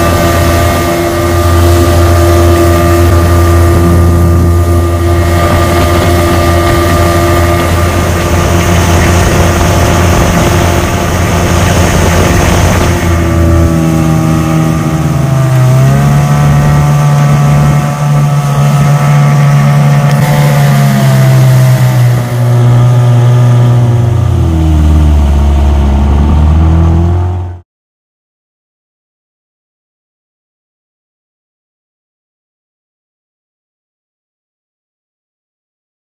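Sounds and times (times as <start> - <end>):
outboard motor running: 0.0 - 27.6.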